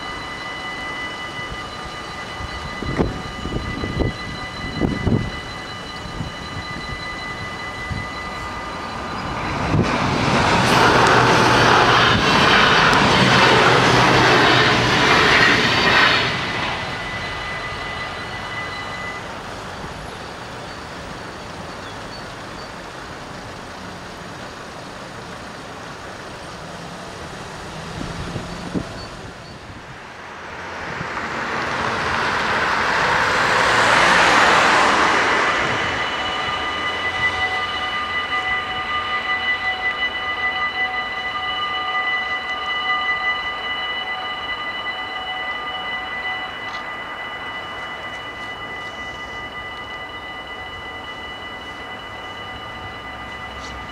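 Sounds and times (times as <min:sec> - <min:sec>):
level crossing warning bells: 0:00.0 - 0:53.9
train rumbling: 0:00.0 - 0:53.9
road vehicle passing: 0:07.5 - 0:21.6, 0:22.3 - 0:42.9.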